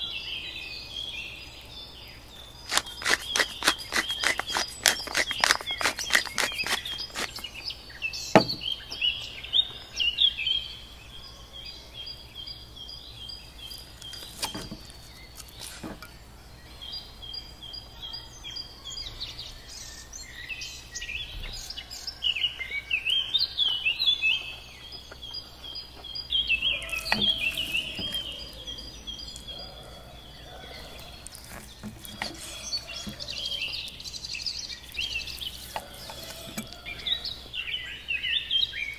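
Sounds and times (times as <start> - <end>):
small birds chirping: 0.0 - 38.9
quick run of clicks: 2.7 - 7.7
knocks: 8.4 - 8.7.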